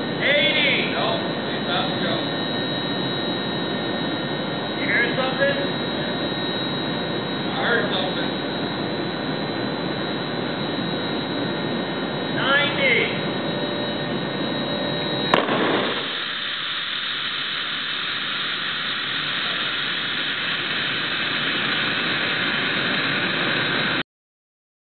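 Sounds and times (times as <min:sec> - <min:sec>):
steady rushing noise: 0:00.0 - 0:24.0
plastic bottle bursting bang: 0:15.4 - 0:15.9.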